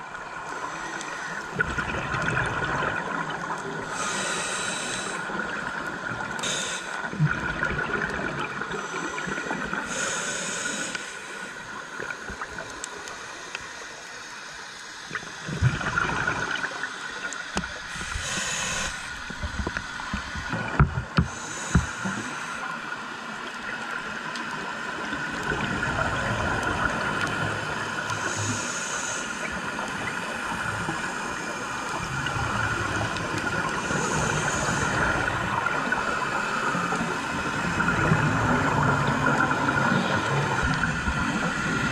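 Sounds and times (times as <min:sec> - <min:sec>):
steady underwater hiss: 0:00.0 - 0:41.9.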